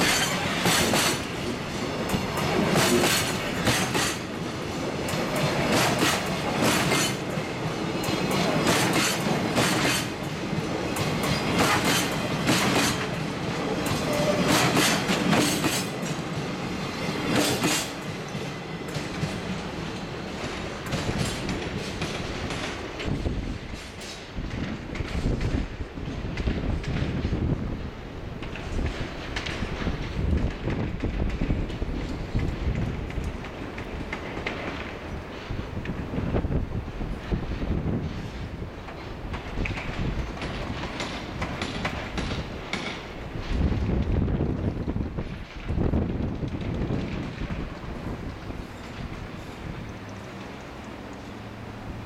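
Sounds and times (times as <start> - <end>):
train rolling rumble: 0.0 - 52.0
train wheels clacking on rail joints: 0.0 - 52.0.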